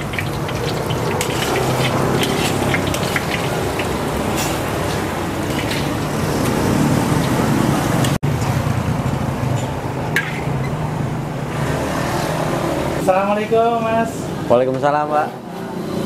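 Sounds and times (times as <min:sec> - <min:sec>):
oil sizzling in a wok: 0:00.0 - 0:06.7.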